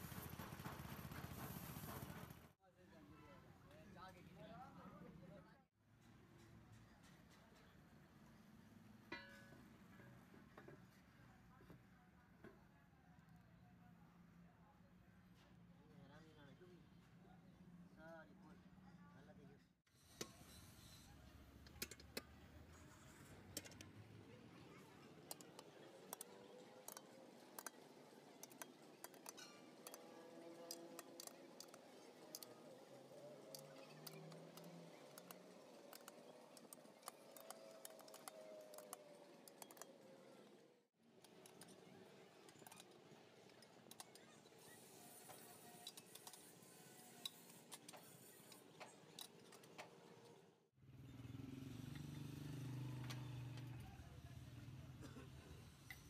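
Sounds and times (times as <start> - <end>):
box spanner clicking on nuts: 25.3 - 32.6, 33.3 - 40.0.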